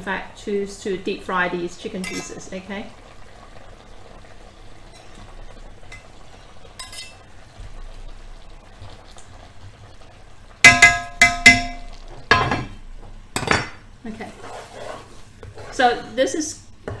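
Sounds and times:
sauce simmering in a pan: 0.1s - 17.0s
pot lid clanking on cookware: 10.7s - 12.8s.

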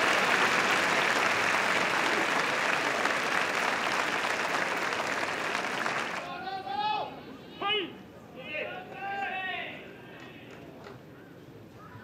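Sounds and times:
crowd applauding: 0.0s - 6.3s.

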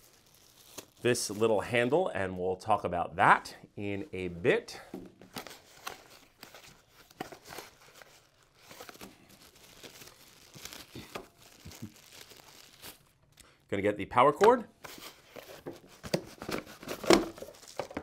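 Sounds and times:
plastic wrapping crinkling: 0.0s - 1.7s, 5.3s - 13.4s, 14.8s - 18.0s.

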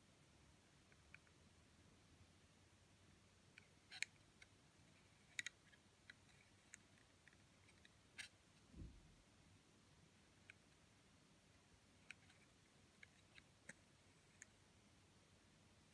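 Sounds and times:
soft low thump: 8.7s - 9.1s.

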